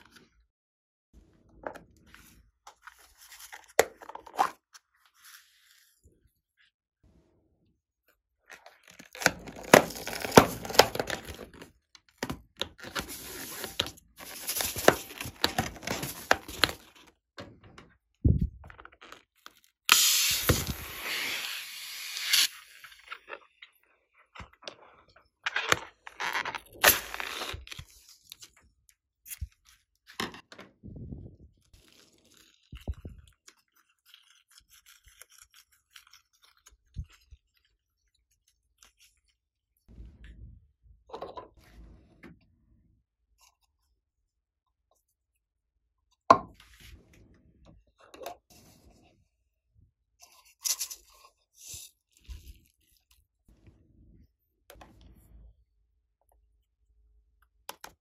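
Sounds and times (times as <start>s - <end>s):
balloons rubbing and scraping: 13.0s - 16.8s.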